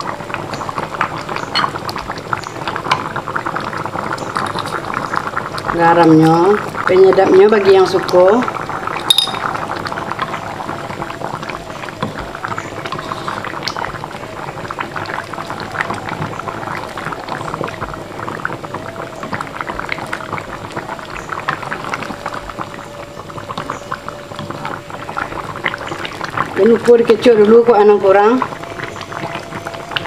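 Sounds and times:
curry bubbling in a pot: 0:00.0 - 0:30.0.

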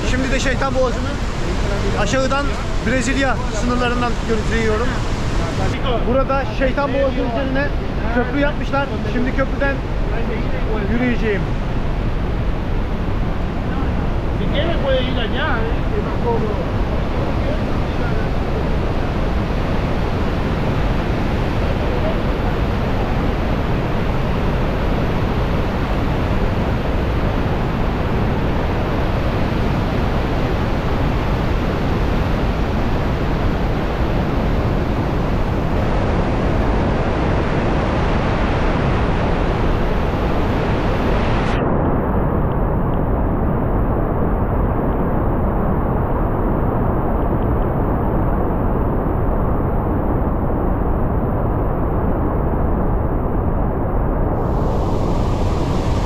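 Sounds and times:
waterfall rushing: 0:00.0 - 0:05.9, 0:54.4 - 0:56.0.

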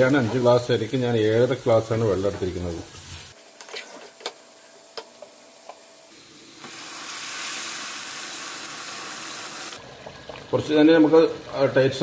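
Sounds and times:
rice frying with faint sizzle: 0:00.0 - 0:12.0
water poured into hot pot hissing: 0:06.2 - 0:10.6.

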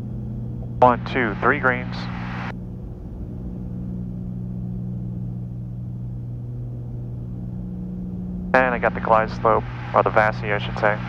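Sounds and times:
airplane engines droning: 0:00.0 - 0:11.0.

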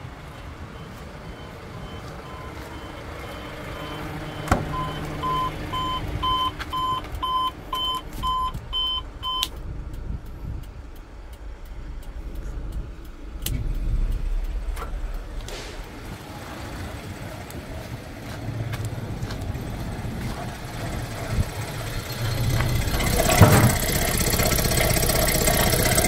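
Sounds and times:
two-tone warning beeps: 0:00.7 - 0:09.5.

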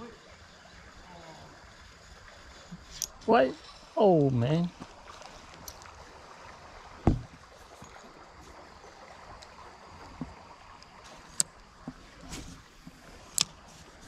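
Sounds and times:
creek water rushing: 0:00.0 - 0:14.0
heavy thump: 0:07.0 - 0:07.4.

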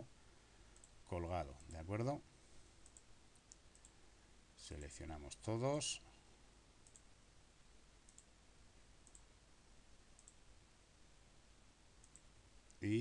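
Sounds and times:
computer mouse clicks: 0:00.7 - 0:01.0, 0:02.8 - 0:04.0, 0:06.8 - 0:07.1, 0:08.1 - 0:08.3, 0:09.0 - 0:09.3, 0:10.2 - 0:10.4, 0:12.0 - 0:12.8.

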